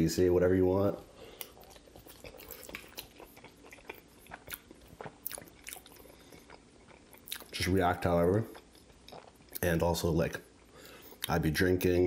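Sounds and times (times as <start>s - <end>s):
chewing food: 1.4s - 7.8s, 8.4s - 9.8s.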